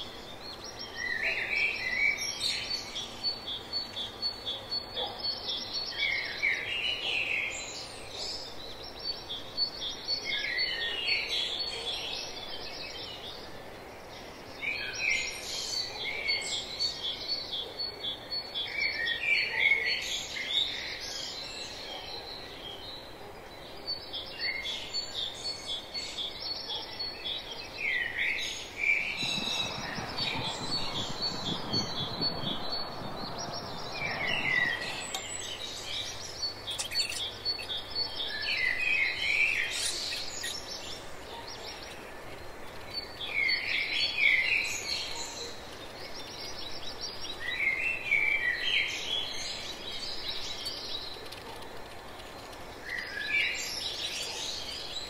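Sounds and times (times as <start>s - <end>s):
birds chirping: 25.1s - 55.0s
low rushing noise: 28.7s - 36.0s.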